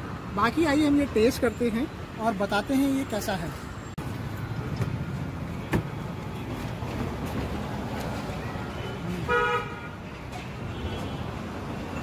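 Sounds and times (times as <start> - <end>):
road traffic: 0.0 - 12.0
vehicle horn toot: 9.3 - 9.9.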